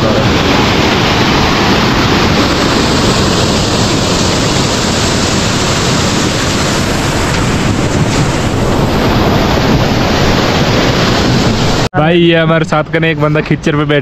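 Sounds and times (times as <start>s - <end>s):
waterfall rushing: 0.0s - 12.4s.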